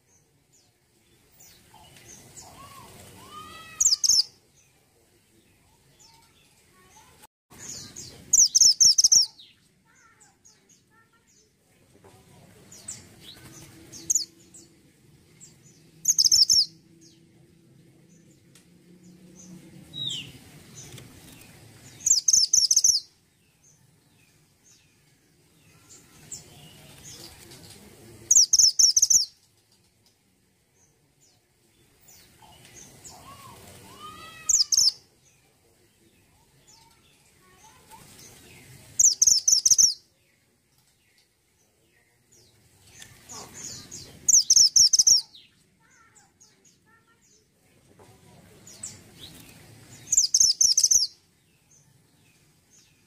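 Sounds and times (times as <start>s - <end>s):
bird chirping rapidly: 2.6s - 4.3s, 7.8s - 9.5s, 16.0s - 16.8s, 21.9s - 23.1s, 28.3s - 29.4s, 34.0s - 35.0s, 39.0s - 40.0s, 43.7s - 45.3s, 50.0s - 51.2s.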